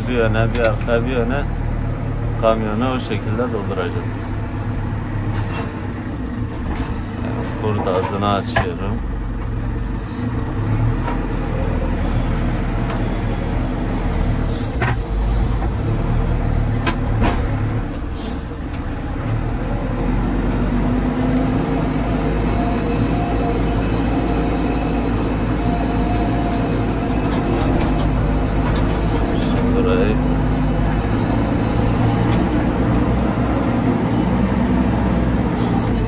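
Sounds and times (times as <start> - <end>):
diesel engine running under load: 0.0 - 36.0.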